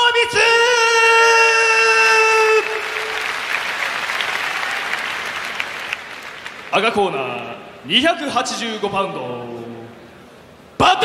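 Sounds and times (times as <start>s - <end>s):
audience applause: 2.4s - 7.2s.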